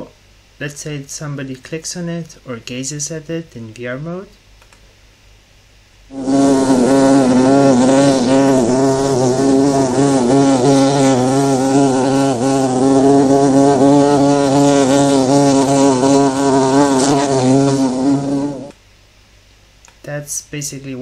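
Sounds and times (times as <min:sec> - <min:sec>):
bee buzzing: 0:06.1 - 0:18.7.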